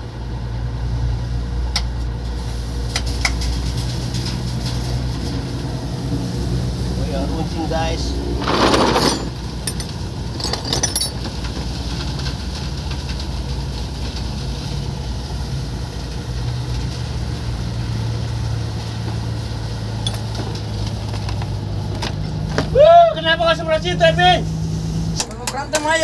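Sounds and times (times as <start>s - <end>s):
wrenches clinking: 8.4s - 11.5s, 20.0s - 20.6s.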